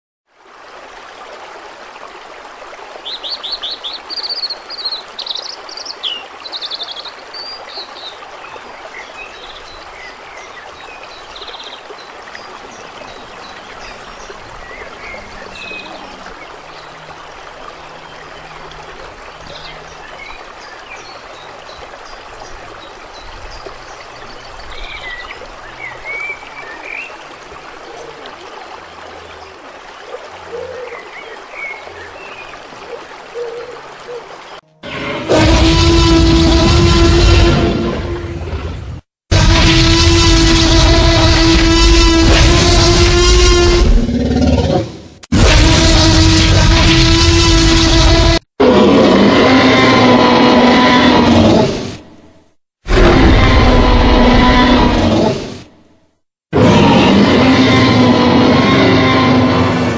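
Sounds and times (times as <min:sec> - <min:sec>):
rushing hiss of running water: 0:00.4 - 0:34.6.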